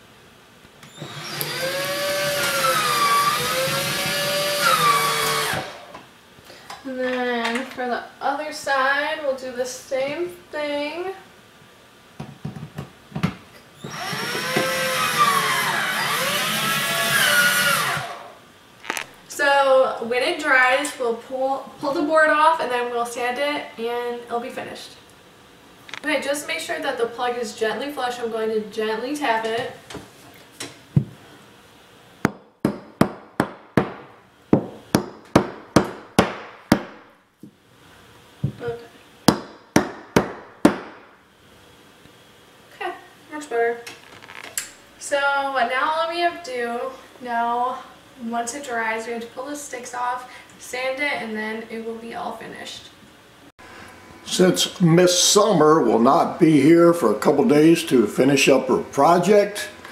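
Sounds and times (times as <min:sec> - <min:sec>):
cordless drill whining: 0:00.8 - 0:05.9, 0:13.8 - 0:19.1
hammer knocking on wooden block: 0:32.3 - 0:37.0, 0:39.3 - 0:41.0.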